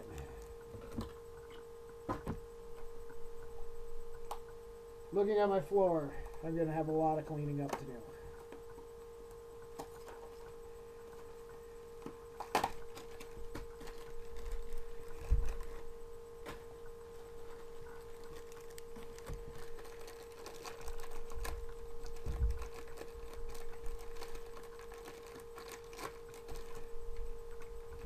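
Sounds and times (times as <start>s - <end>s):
electrical hum: 0.0s - 28.0s
packet crinkling and tearing: 12.4s - 15.9s, 17.4s - 27.7s.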